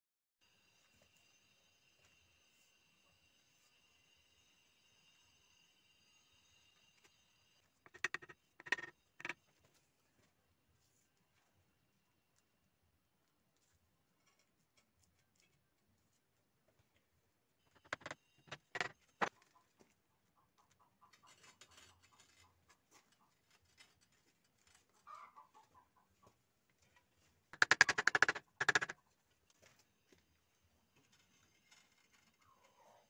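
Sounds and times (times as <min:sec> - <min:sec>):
brick scraping against brick: 0:07.9 - 0:09.4, 0:17.7 - 0:19.3, 0:27.6 - 0:28.9
bricks knocking on steel plate: 0:17.7 - 0:18.9.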